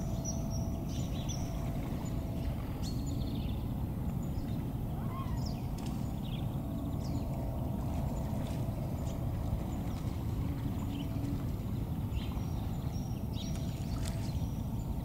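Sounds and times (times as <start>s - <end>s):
low rumble: 0.0s - 13.8s.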